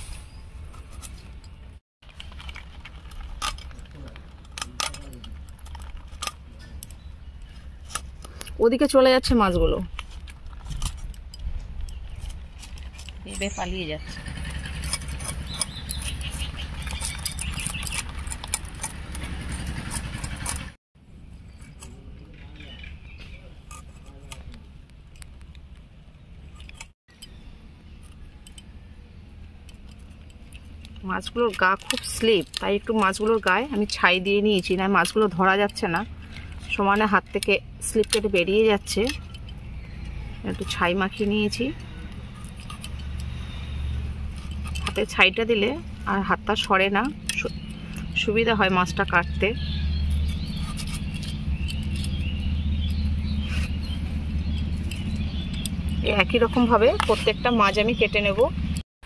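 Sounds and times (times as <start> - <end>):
blade scraping fish scales: 11.8 - 20.8, 29.9 - 48.4, 49.6 - 57.6
bangles clinking: 14.5 - 20.7.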